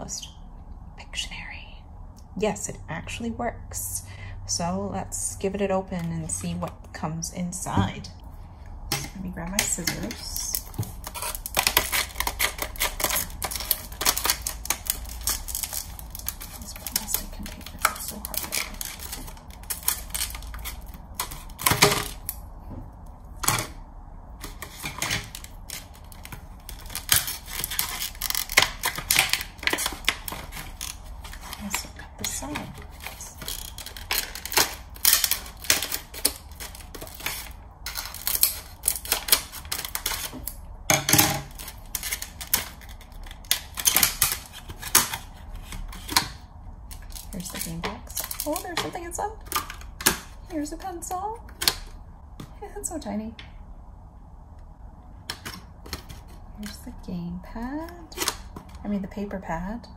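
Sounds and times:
plastic packaging crackling: 0:08.9 - 0:22.6, 0:23.3 - 0:52.0.

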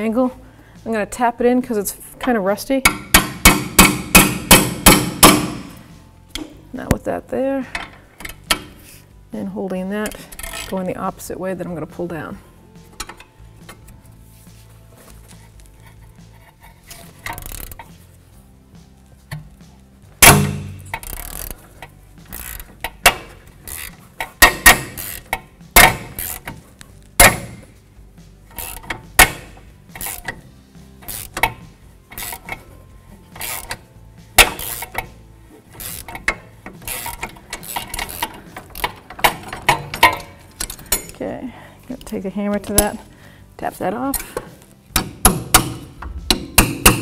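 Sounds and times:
wrench and ratchet clicking on metal: 0:02.2 - 0:06.6, 0:07.6 - 0:08.8, 0:10.0 - 0:11.0, 0:12.9 - 0:13.8, 0:15.8 - 0:18.0, 0:20.2 - 0:27.8, 0:28.4 - 0:41.2, 0:44.1 - 0:47.0.

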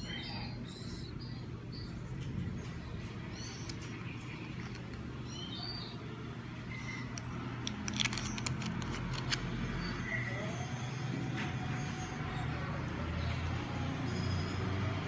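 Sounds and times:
bird chirps: 0:00.0 - 0:07.6.

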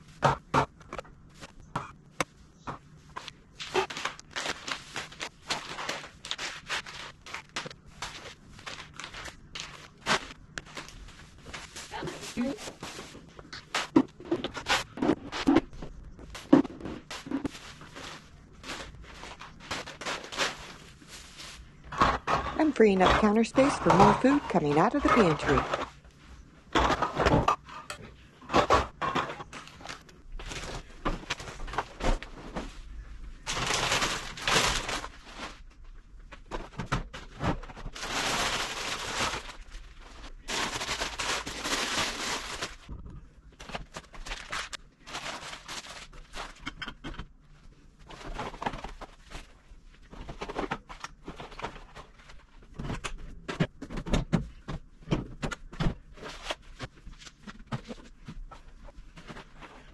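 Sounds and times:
packaging rustling: 0:03.2 - 0:15.4, 0:33.4 - 0:35.7, 0:36.5 - 0:42.9, 0:43.6 - 0:46.6.

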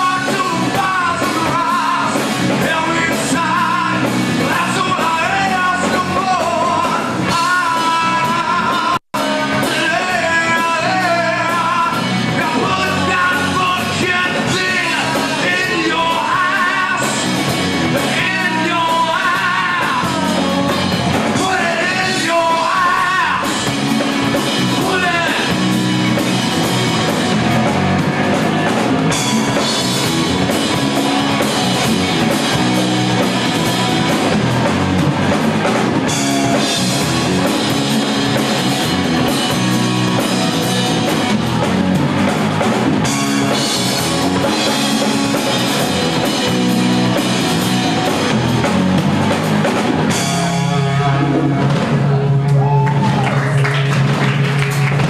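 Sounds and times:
person singing: 0:00.0 - 0:23.7, 0:24.5 - 0:25.8
bass guitar: 0:00.0 - 0:55.0
drum kit: 0:00.0 - 0:55.0
electric guitar: 0:00.0 - 0:55.0.

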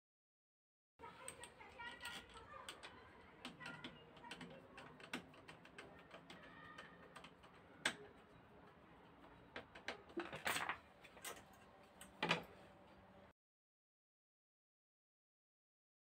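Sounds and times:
screwdriver clicking on metal: 0:01.1 - 0:12.5.

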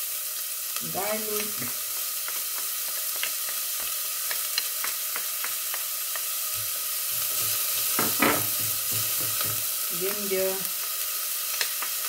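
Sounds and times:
onion and garlic sizzling in oil: 0:00.0 - 0:12.0
spatula tapping: 0:04.3 - 0:09.7.

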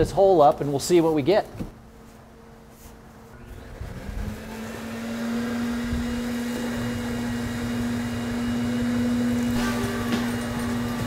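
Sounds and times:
machine humming: 0:03.2 - 0:11.0.

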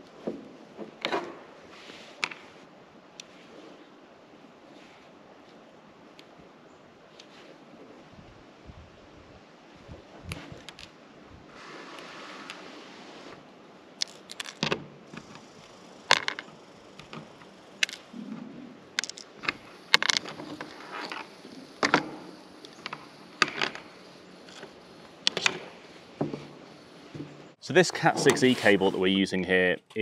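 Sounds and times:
wire handling noises: 0:14.0 - 0:18.4, 0:19.0 - 0:29.1.

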